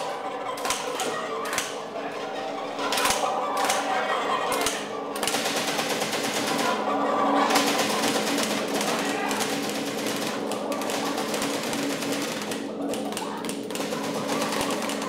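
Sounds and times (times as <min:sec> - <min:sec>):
simulated gunfire: 0:04.5 - 0:06.8, 0:07.4 - 0:15.0.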